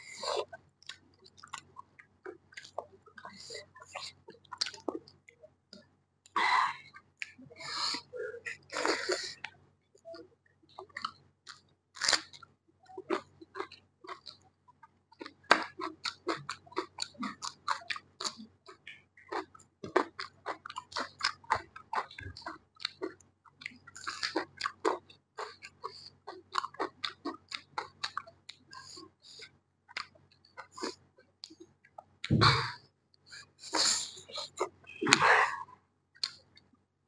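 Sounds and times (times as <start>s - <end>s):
person chewing food: 0.0s - 36.7s.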